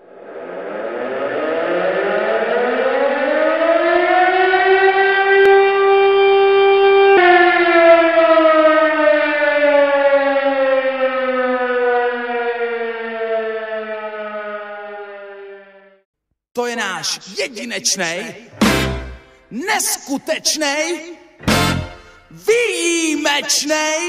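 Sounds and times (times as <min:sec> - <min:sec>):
fire siren winding: 0:00.5 - 0:16.0.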